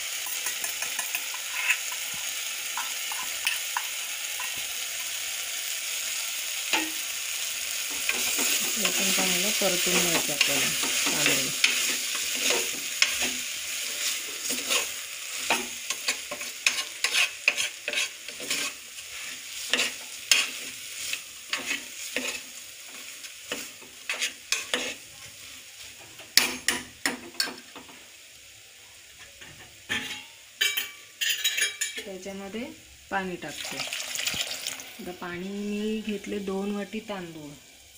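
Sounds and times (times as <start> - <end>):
rice sizzling in oil: 0.0 - 37.9
steel spoon scraping and knocking pot: 0.2 - 2.1, 14.0 - 18.8, 29.9 - 32.1.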